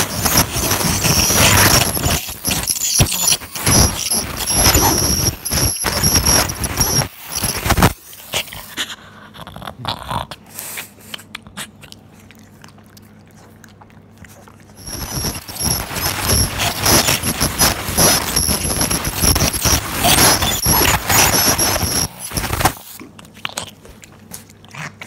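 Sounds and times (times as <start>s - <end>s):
dental scaler whine: 0.0s - 8.0s, 14.8s - 23.0s.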